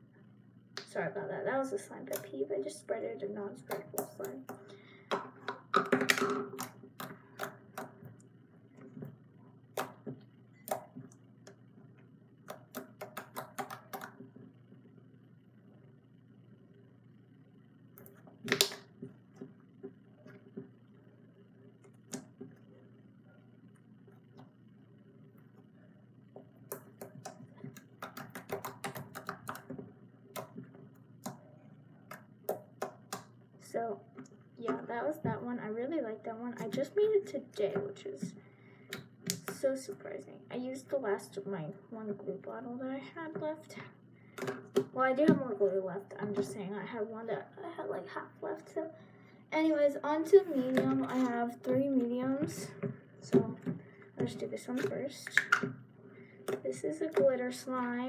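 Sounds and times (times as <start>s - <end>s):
slime popping and clicking: 18.0s - 18.8s.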